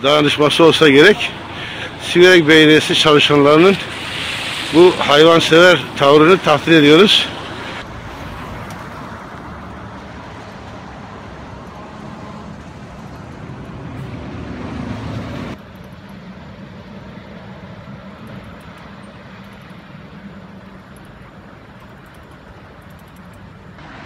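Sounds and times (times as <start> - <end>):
road traffic passing: 0.0 - 24.0
vehicle passing close: 0.1 - 15.6.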